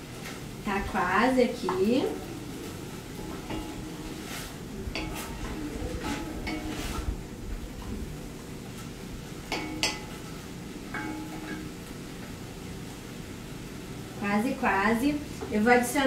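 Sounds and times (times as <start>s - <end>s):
wooden spoon scraping a pot: 2.2s - 8.0s
light clacks against pot: 3.3s - 7.2s.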